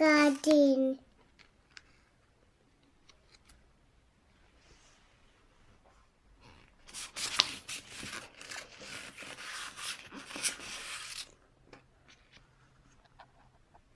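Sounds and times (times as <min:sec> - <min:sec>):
book pages rustling: 0:06.4 - 0:11.3.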